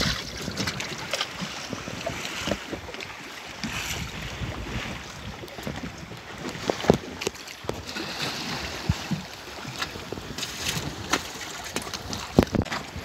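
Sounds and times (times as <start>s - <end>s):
wind buffeting microphone: 0.0s - 7.9s
water washing against boat hull: 0.0s - 13.0s.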